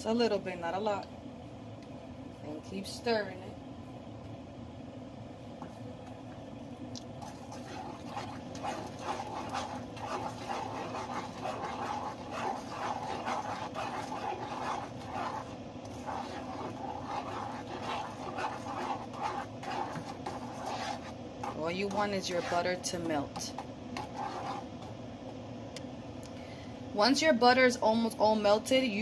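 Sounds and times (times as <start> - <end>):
metal spoon scraping saucepan: 7.5 - 24.6.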